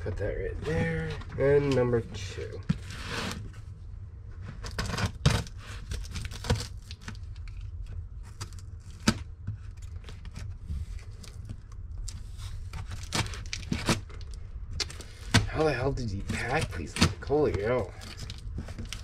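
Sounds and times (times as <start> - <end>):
tape cracking: 4.6 - 19.0
knife cutting packing tape: 12.9 - 14.1.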